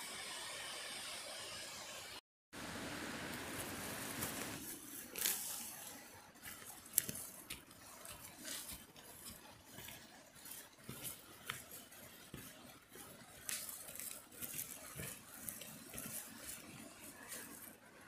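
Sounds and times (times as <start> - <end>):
stick scraping soil and leaves: 3.3 - 18.0.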